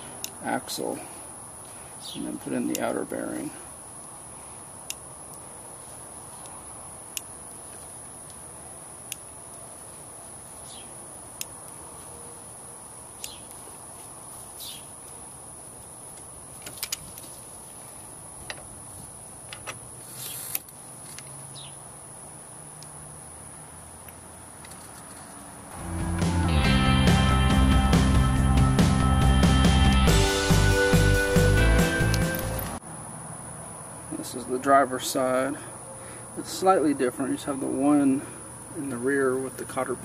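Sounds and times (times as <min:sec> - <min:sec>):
insect chirring: 0:01.3 - 0:17.2.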